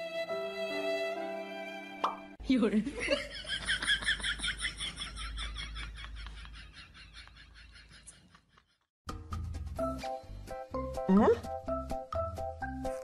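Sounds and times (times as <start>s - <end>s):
music: 0.0s - 2.4s, 9.1s - 13.0s.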